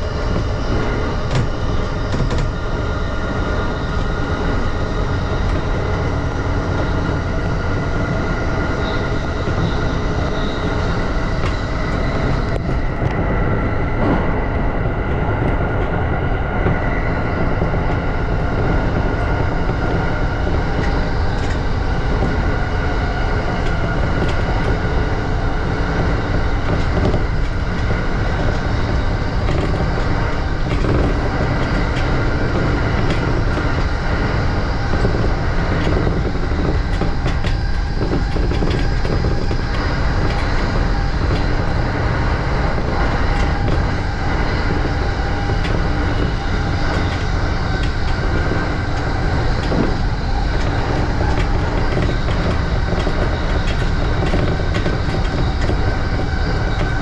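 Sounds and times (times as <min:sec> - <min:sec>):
train wheels rumbling on rail: 0:00.0 - 0:57.0
clicks over rail joints: 0:16.6 - 0:57.0.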